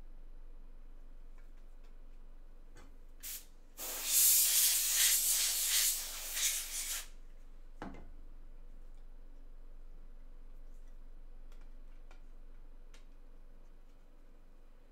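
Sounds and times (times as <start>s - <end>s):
hissing spray: 3.2s - 7.1s.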